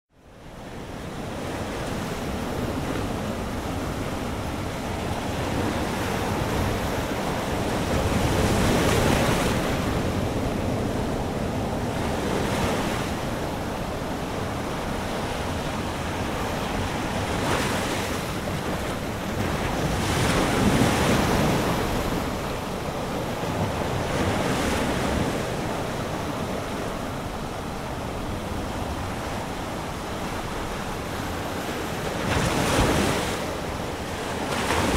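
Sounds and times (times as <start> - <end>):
ocean surf washing onto beach: 0.5 - 34.9.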